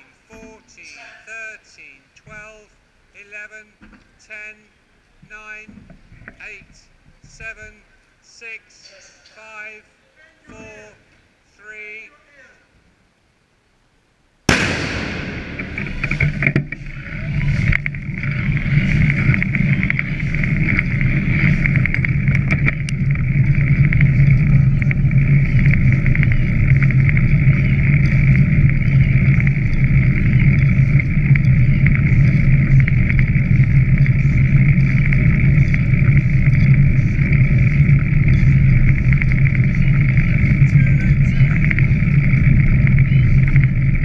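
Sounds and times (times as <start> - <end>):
wind noise on microphone: 14.5 - 44.0.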